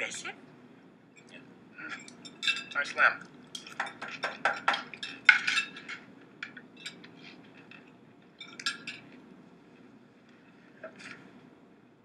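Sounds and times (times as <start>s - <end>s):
cutlery clinking on plates: 2.0s - 2.8s, 3.5s - 7.8s, 8.4s - 9.1s.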